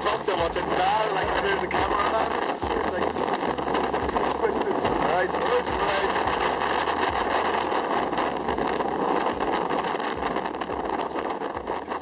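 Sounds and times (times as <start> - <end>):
motorboat engine drone: 0.0 - 12.0
water rushing along hull: 0.0 - 12.0
wind on microphone: 0.0 - 12.0.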